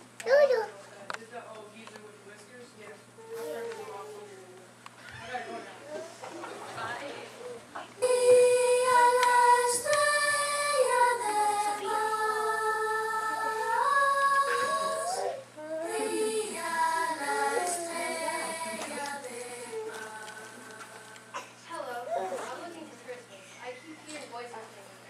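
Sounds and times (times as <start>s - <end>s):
high voice singing: 8.0s - 21.3s.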